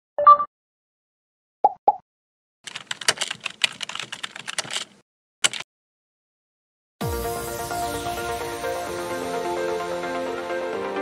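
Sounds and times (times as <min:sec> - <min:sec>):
rapid keyboard typing: 0:02.7 - 0:05.6.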